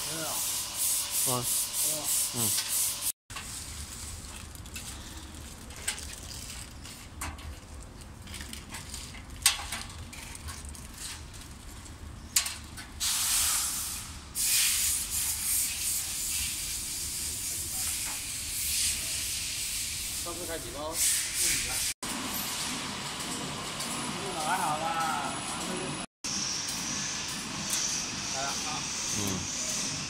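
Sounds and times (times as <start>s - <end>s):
machine hissing: 0.0s - 3.2s, 13.0s - 22.8s, 24.3s - 30.0s.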